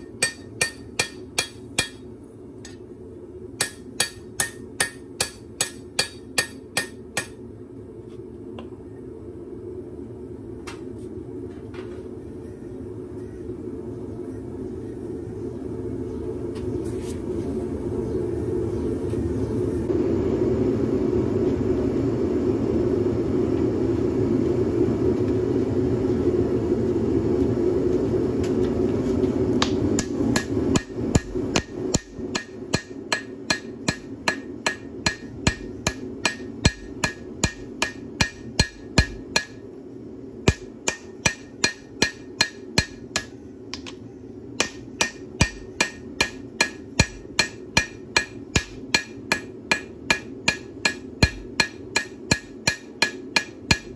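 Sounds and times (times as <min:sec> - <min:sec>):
hammer striking steel on anvil: 0:00.0 - 0:02.8, 0:03.6 - 0:07.4, 0:29.6 - 0:39.6, 0:40.4 - 0:43.9, 0:44.6 - 0:53.9.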